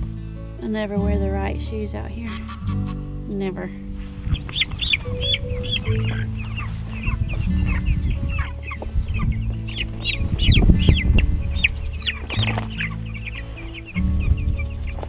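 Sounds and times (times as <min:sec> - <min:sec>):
chicks peeping: 0:02.1 - 0:03.0, 0:03.9 - 0:15.0
rustling: 0:03.8 - 0:15.0.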